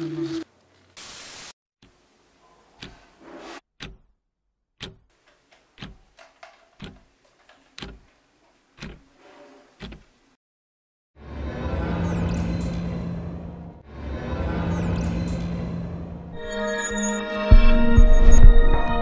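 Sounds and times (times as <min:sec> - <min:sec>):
clock-like ticking: 0:03.8 - 0:04.1, 0:05.8 - 0:06.2, 0:06.8 - 0:07.1, 0:07.8 - 0:08.0, 0:08.8 - 0:09.0, 0:09.8 - 0:10.0.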